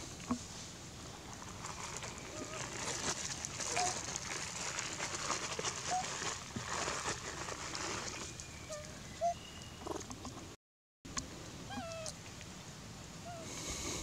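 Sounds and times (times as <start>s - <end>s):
steady hiss: 12.6s - 14.0s.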